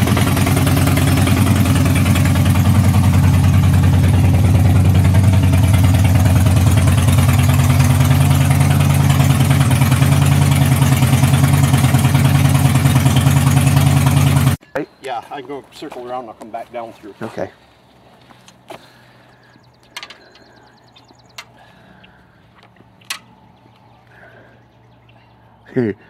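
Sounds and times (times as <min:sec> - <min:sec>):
motorcycle engine idling: 0:00.0 - 0:14.6, 0:18.8 - 0:25.0.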